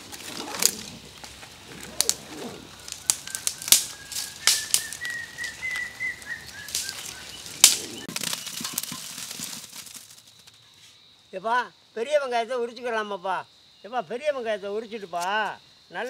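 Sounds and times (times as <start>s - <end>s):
dry twigs snapping: 0.0s - 10.6s
dry branches rustling: 0.0s - 10.9s.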